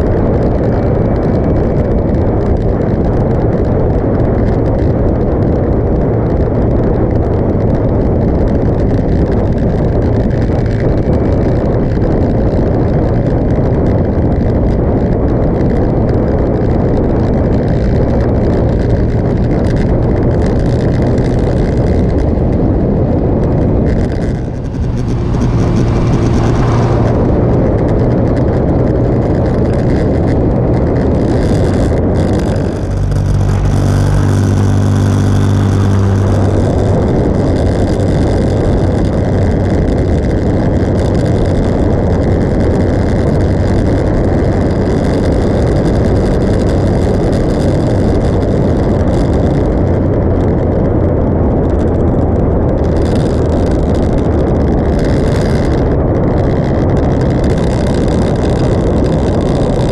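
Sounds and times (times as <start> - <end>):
motorcycle engine running: 0.0 - 59.9
wind rushing on microphone: 0.0 - 59.9.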